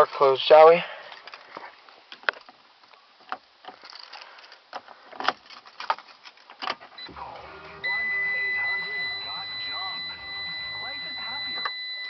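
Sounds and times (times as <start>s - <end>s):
keys rattling in ignition: 3.7s - 4.6s, 5.2s - 6.9s
car engine cranking and starting: 6.6s - 11.8s
high electronic tone: 7.0s - 12.0s.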